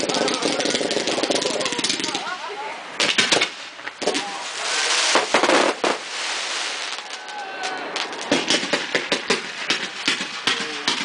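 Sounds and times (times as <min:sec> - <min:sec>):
fireworks pops: 0:00.0 - 0:02.4, 0:03.0 - 0:11.0
fireworks bangs: 0:00.0 - 0:11.0
fireworks crackling hiss: 0:00.0 - 0:11.0.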